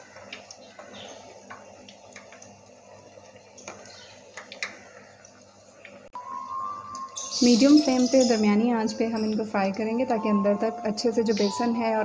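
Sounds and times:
oil crackling and popping: 0.0 - 6.1.

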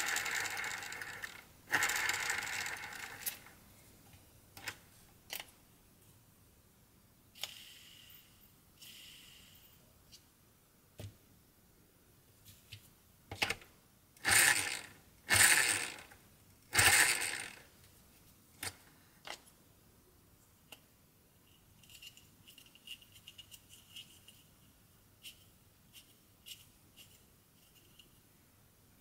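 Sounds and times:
plastic gears grinding: 0.0 - 3.5, 14.2 - 17.6.

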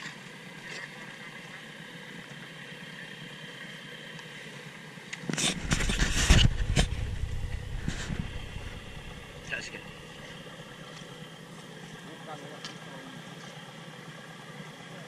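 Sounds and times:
off-road vehicle engine revving: 1.7 - 12.3
wheels spinning in mud: 5.3 - 11.2.

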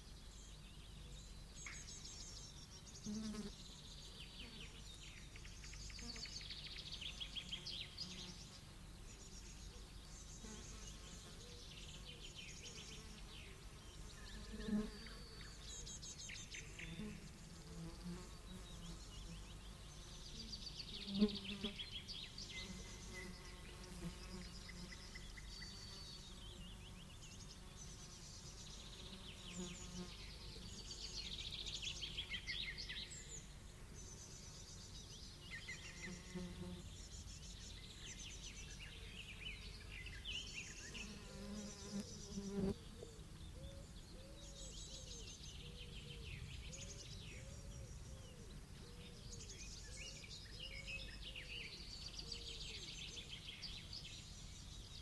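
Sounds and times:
birds singing: 0.0 - 55.0
insects buzzing: 16.6 - 39.0, 39.6 - 43.0.

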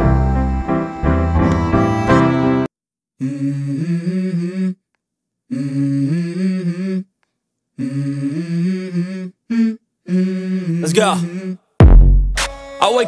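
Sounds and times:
person humming a melody: 3.2 - 4.8, 5.5 - 7.1, 7.8 - 11.6.

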